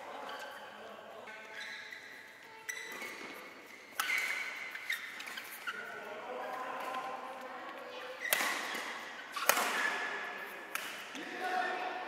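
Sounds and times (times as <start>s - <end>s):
shoes squeaking on court: 0.2s - 6.0s, 8.0s - 10.5s
racket striking shuttlecock: 8.3s - 11.3s.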